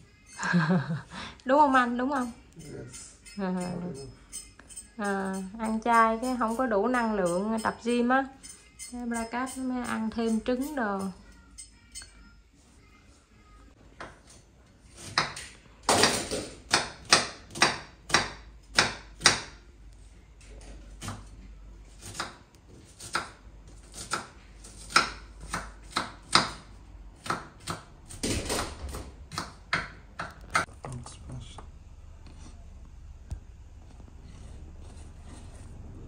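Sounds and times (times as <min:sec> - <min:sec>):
knife chopping on cutting board: 0:22.0 - 0:30.7.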